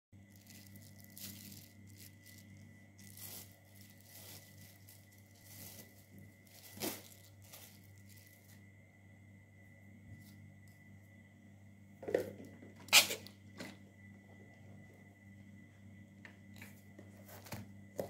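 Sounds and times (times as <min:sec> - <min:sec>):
faint steady hum: 0:00.2 - 0:18.0
plastic sheeting and paper rustling: 0:00.3 - 0:08.6.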